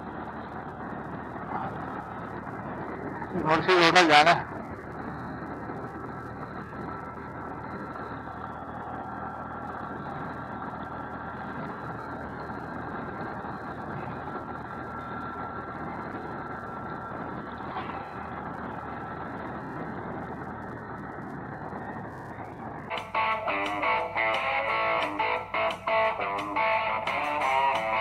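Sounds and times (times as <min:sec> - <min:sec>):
faint steady whine: 0:00.0 - 0:28.0
motorcycle engine drone: 0:00.0 - 0:28.0.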